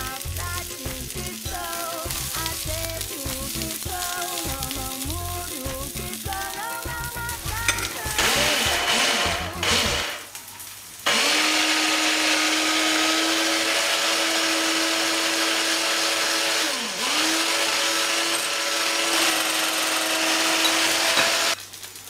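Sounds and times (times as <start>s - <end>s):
electric hand mixer whining: 0.0s - 10.3s, 11.1s - 21.6s.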